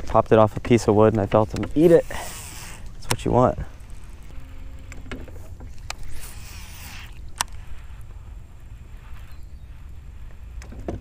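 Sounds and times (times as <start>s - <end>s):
steady low rumble: 0.0s - 10.7s
reel clicks: 0.6s - 8.2s
fishing line rushing hiss: 1.8s - 4.2s, 5.8s - 10.6s.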